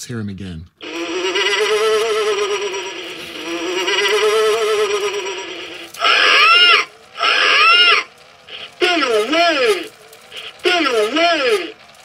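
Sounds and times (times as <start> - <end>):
buzzy warbling electronic tone: 0.8 - 9.9.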